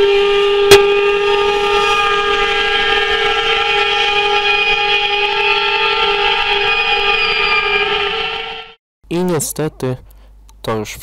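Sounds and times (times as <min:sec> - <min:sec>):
steam locomotive whistle: 0:00.0 - 0:08.8.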